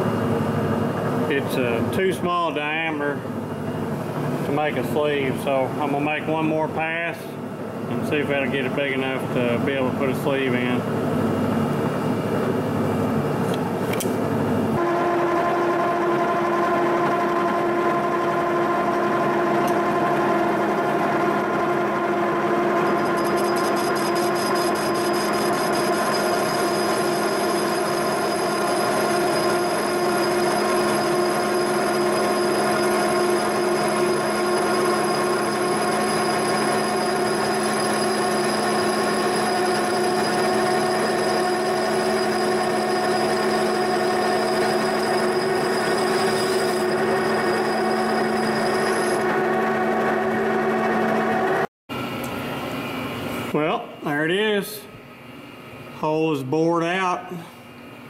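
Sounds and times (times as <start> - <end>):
milling machine spindle boring metal: 22.7 - 51.6
high-pitched ring: 22.8 - 49.2.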